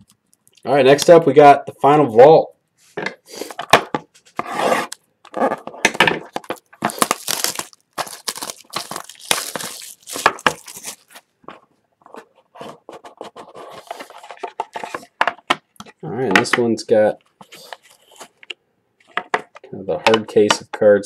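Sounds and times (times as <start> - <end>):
plastic shrink-wrap crinkling: 6.3 - 11.3.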